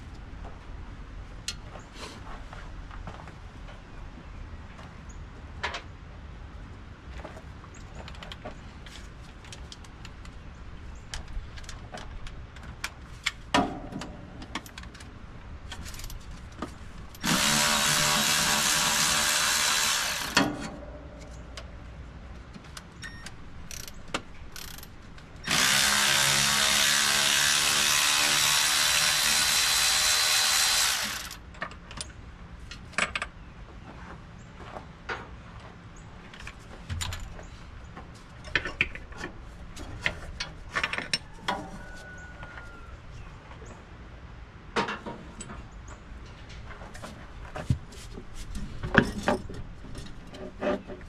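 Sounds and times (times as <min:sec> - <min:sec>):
power drill whining: 0:17.2 - 0:20.4, 0:25.5 - 0:31.4
tools and metal parts clanking: 0:36.3 - 0:37.5, 0:38.3 - 0:41.8, 0:48.5 - 0:51.0.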